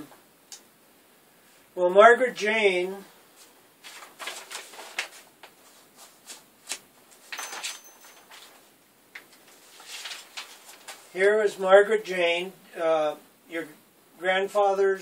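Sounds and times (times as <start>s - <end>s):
paper sheets rustling: 3.4s - 11.2s.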